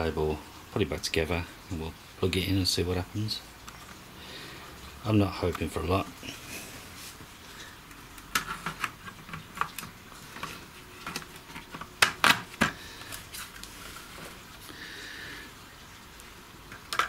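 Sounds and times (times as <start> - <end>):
plastic clicks and knocks: 8.2 - 12.8, 16.7 - 17.0.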